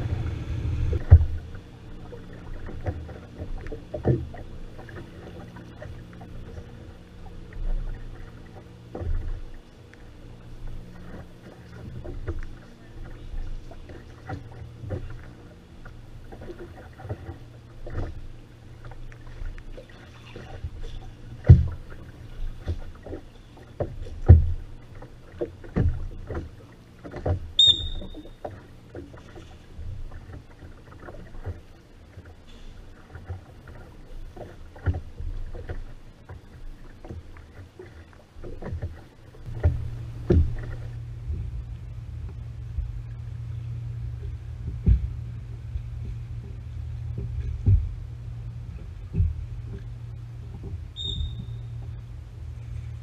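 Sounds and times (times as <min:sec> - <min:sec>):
steady low hum: 0:00.0 - 0:53.0
water sounds: 0:00.0 - 0:53.0
brief high beep: 0:27.6 - 0:28.2.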